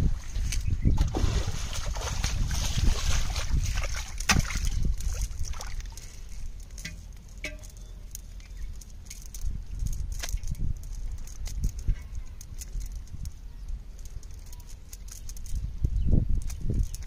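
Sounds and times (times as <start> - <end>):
pond water sloshing and splashing: 0.0 - 10.3.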